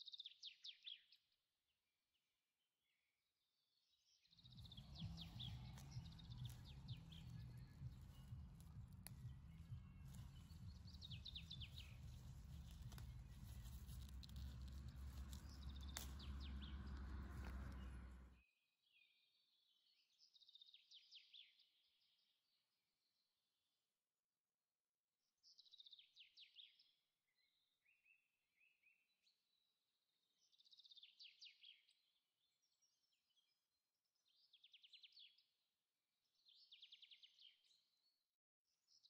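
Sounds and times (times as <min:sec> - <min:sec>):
small birds chirping: 0:04.4 - 0:18.4
low rumbling noise: 0:04.5 - 0:18.4
rustling: 0:04.5 - 0:18.4.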